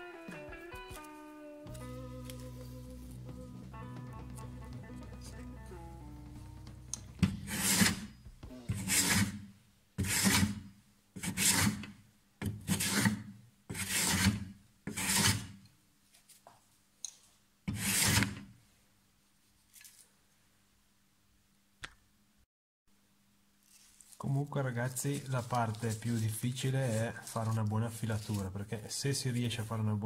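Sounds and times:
hand plane shaving wood: 6.6 - 9.4, 10.0 - 10.6, 11.2 - 11.8, 12.7 - 15.5, 17.7 - 18.4.

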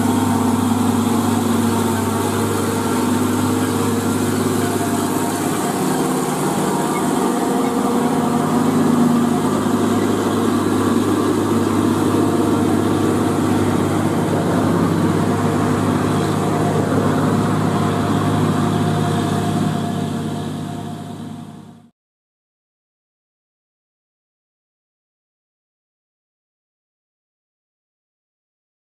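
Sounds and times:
diesel truck engine passing: 0.0 - 21.9.

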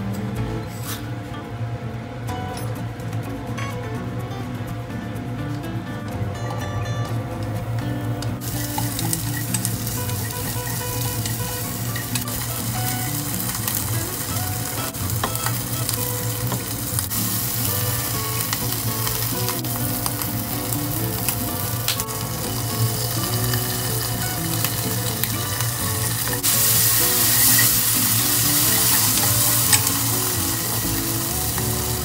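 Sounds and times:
onion sizzling in hot oil: 8.4 - 32.0
spatula tapping pan: 8.4 - 32.0.

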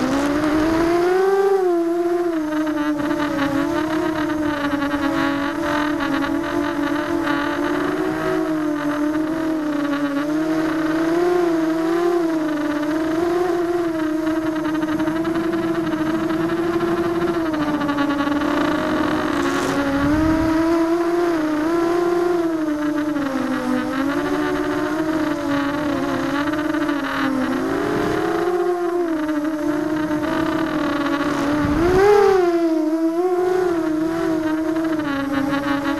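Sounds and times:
quadcopter motors whining: 0.0 - 35.9
low rush of noise: 14.3 - 21.4.

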